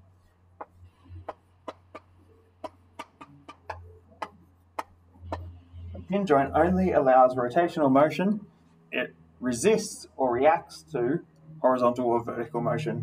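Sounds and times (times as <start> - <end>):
chalk tapping on chalkboard: 0.6 - 5.5.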